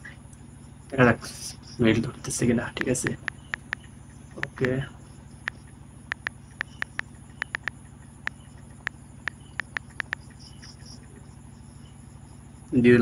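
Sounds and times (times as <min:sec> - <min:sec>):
low machine hum: 0:00.0 - 0:13.0
phone keyboard taps: 0:02.8 - 0:04.8, 0:05.4 - 0:10.4.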